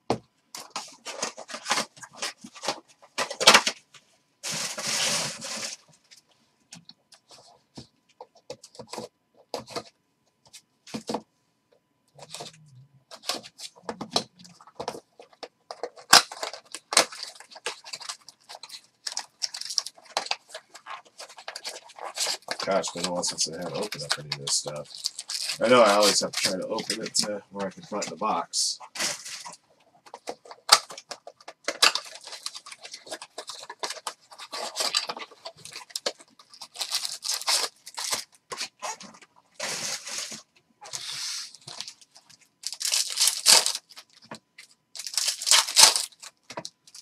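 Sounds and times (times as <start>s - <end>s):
plastic wrap crinkling and tearing: 4.4s - 5.8s, 13.1s - 47.0s.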